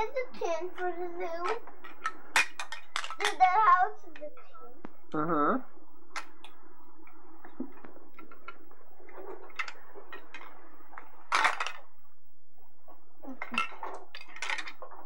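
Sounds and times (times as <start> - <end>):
plastic toys clattering: 0.0 - 4.5, 7.6 - 11.9, 13.2 - 15.0.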